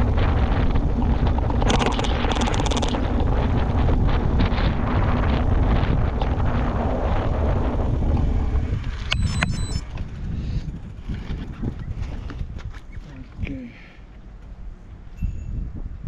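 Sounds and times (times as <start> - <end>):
mountain bike rumble: 0.0 - 16.0
wind buffeting microphone: 0.0 - 16.0
high-pitched metallic rings: 15.1 - 15.8.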